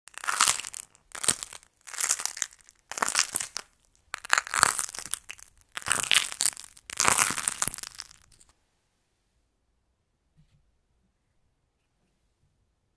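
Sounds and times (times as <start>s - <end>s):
clay cracking and crackling: 0.1s - 8.5s.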